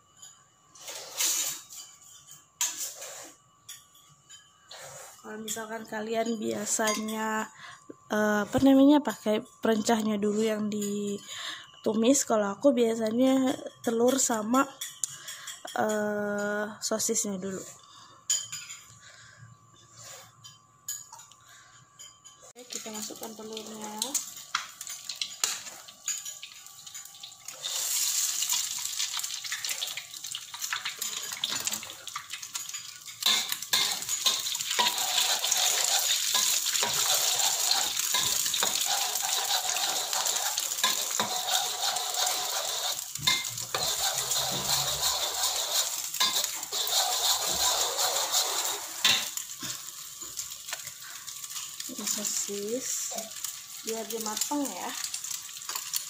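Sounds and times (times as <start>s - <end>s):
egg sizzling in hot oil: 0.0s - 4.4s, 22.6s - 56.0s
spatula scraping and tapping wok: 22.0s - 52.5s.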